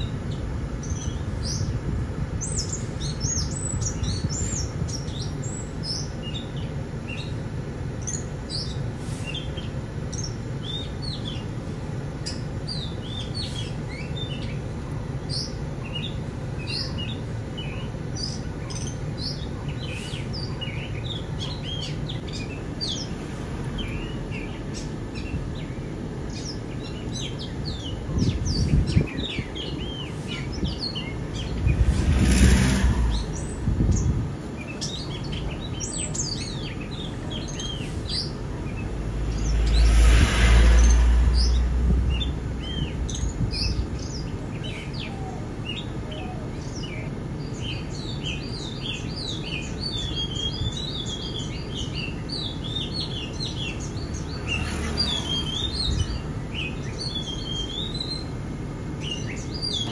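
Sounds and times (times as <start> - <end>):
small birds chirping: 0.0 - 59.9
steady low rumble: 36.8 - 44.7
rush of noise: 37.7 - 44.7.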